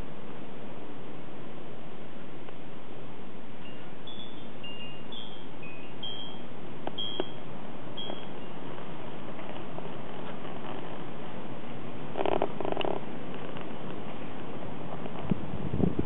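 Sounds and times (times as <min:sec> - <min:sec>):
steady hiss: 0:00.0 - 0:16.0
wind chimes tinkling: 0:03.6 - 0:07.4, 0:08.0 - 0:08.7.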